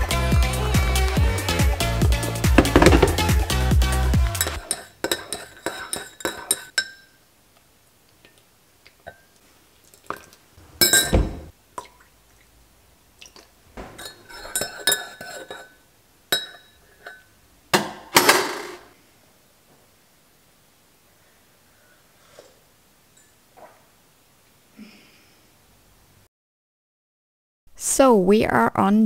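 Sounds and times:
dishes clattering: 0:02.6 - 0:03.3, 0:04.4 - 0:07.1, 0:10.8 - 0:11.5, 0:13.8 - 0:18.8
heavy knock: 0:02.6 - 0:03.3
glassware clinking: 0:04.4 - 0:07.2, 0:10.8 - 0:11.5, 0:13.8 - 0:17.3.

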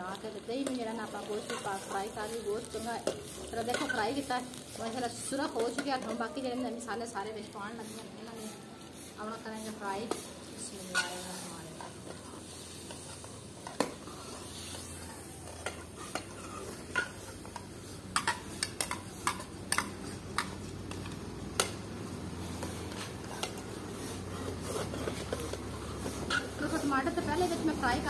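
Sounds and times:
meat sizzling: 0:00.0 - 0:28.0
ladle scraping metal pot: 0:10.8 - 0:11.4.

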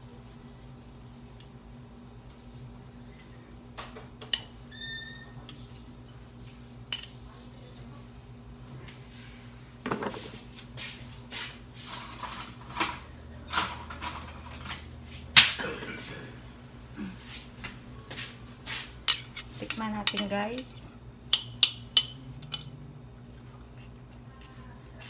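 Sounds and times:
chopsticks clinking on glass bowl: 0:19.1 - 0:22.8.

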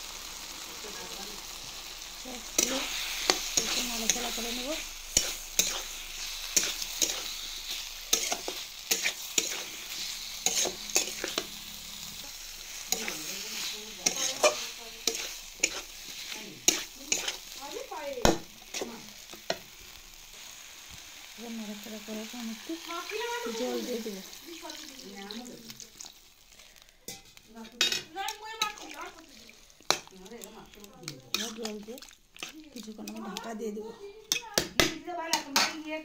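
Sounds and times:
vegetables sizzling in a wok: 0:00.0 - 0:36.0
metal spatula scraping pan: 0:02.6 - 0:17.9, 0:27.1 - 0:30.1, 0:31.1 - 0:32.6.

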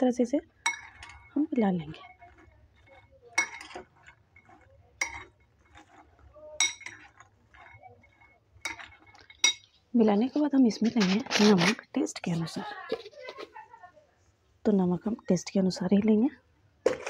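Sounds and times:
food scraping and shuffling: 0:00.0 - 0:13.9
spoon clinking on glass bowl: 0:00.6 - 0:01.5, 0:02.1 - 0:06.0, 0:06.6 - 0:09.8.

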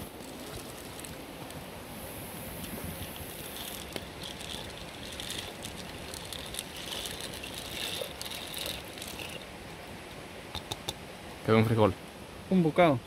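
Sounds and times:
beans pattering into water: 0:03.4 - 0:09.5.

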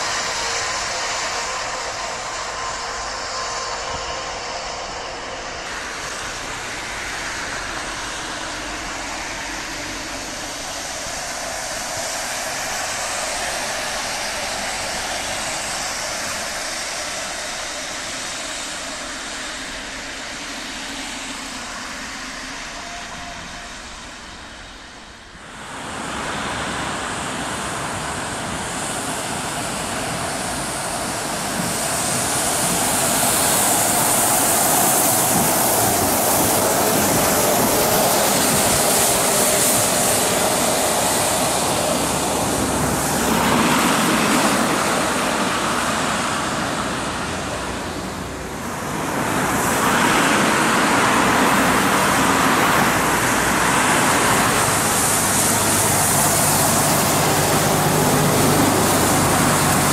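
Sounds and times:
bus approaching: 0:00.0 - 0:59.9
tyres hissing on wet asphalt: 0:00.0 - 0:59.9
cars passing: 0:18.4 - 0:59.9.

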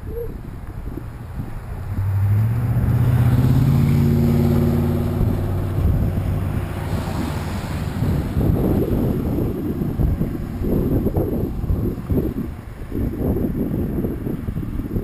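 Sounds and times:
tyres rumbling: 0:00.0 - 0:13.0
wind on microphone: 0:00.0 - 0:15.0
vehicle engine passing: 0:01.1 - 0:13.0.

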